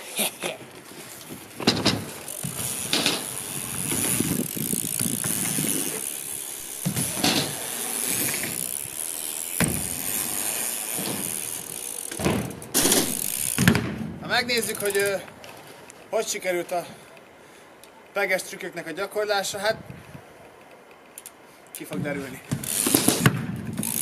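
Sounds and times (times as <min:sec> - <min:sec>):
bike tyres rolling hiss: 0:00.0 - 0:18.7, 0:21.2 - 0:24.0
wheels thudding on ramps: 0:00.7 - 0:15.1, 0:21.9 - 0:24.0.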